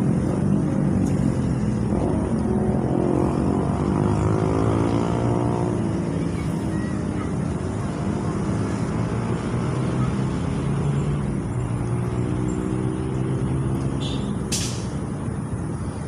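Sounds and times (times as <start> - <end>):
short sharp click: 14.5 - 14.9.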